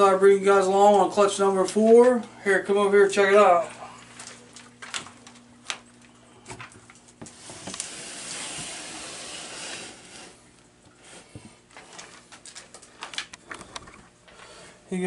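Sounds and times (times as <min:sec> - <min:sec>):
steady hiss: 0:07.2 - 0:11.4
plastic tub sliding out: 0:07.3 - 0:10.4.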